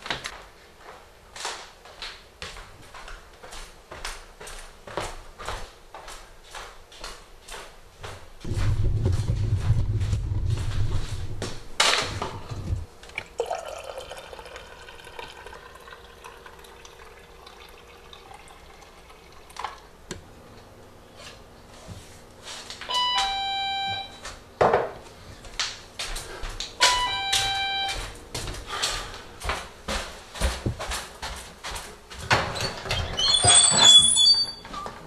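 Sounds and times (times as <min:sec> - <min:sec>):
coffee maker brewing: 0:13.1 - 0:20.2
two-note doorbell chime: 0:22.9 - 0:24.2, 0:26.8 - 0:28.0.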